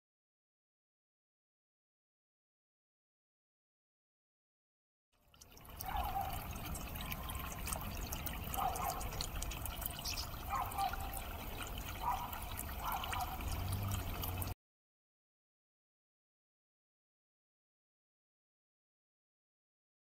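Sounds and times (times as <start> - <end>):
fountain water splashing onto pebbles: 5.2 - 14.6.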